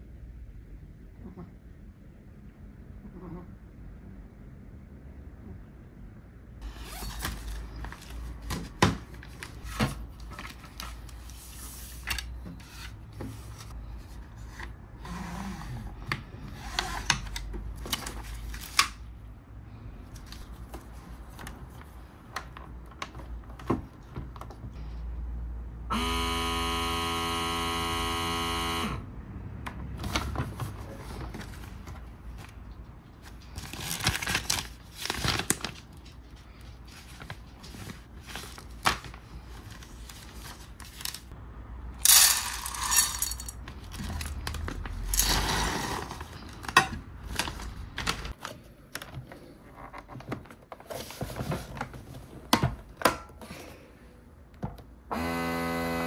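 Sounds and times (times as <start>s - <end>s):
vacuum sealer buzzing hum: 25.9s - 29.0s, 55.1s - 56.0s.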